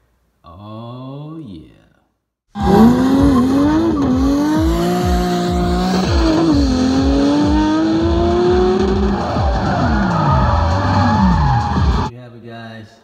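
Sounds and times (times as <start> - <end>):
race car engine revving: 2.6 - 12.1.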